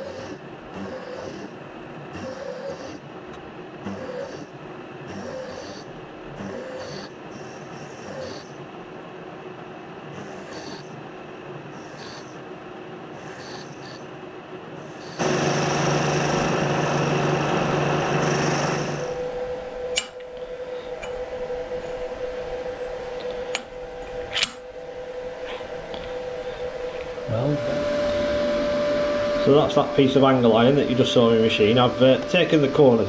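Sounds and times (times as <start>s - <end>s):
milling machine cutting steel: 15.0s - 24.8s, 27.0s - 33.0s.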